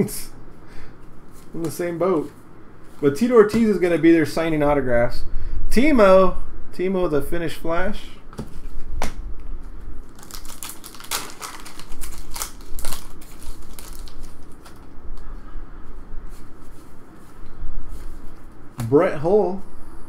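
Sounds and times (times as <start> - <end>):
cards being flicked and shuffled: 10.1 - 15.2.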